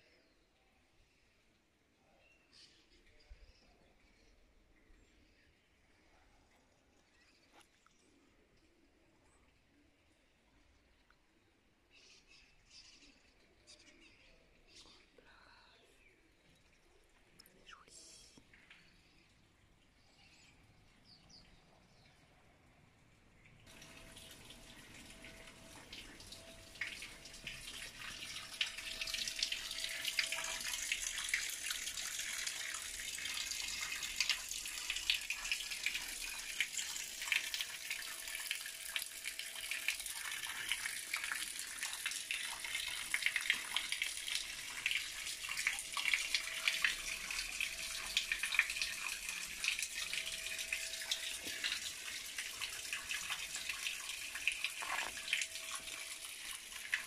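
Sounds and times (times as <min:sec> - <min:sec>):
running water splashing: 0:23.7 - 0:57.0.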